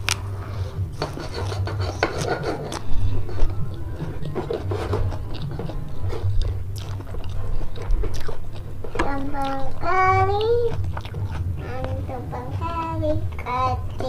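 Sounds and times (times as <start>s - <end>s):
close chewing of crunchy lettuce: 0.0s - 14.0s
fingers mixing rice on a plate: 0.0s - 14.0s.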